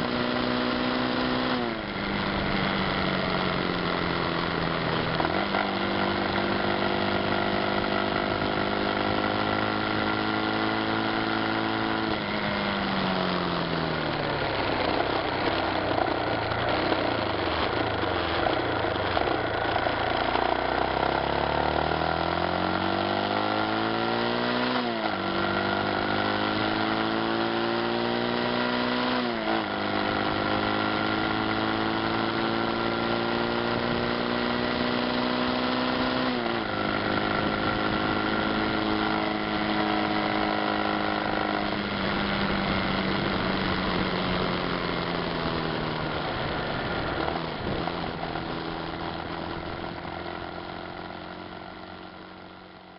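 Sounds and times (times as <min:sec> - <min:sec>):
motorcycle engine accelerating: 0:00.0 - 0:52.9
wind noise: 0:36.2 - 0:50.0.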